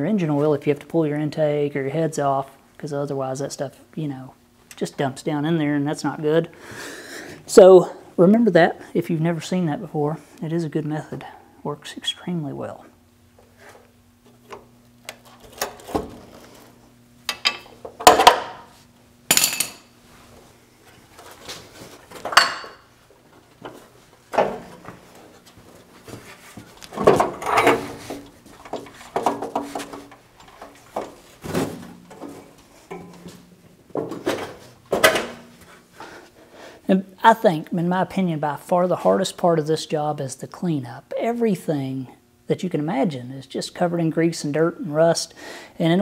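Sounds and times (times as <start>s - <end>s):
metal clanks and rattles: 27.0s - 35.4s.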